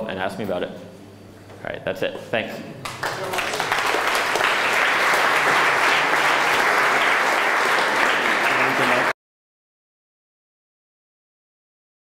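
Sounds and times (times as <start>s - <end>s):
audience applauding: 2.9s - 9.2s.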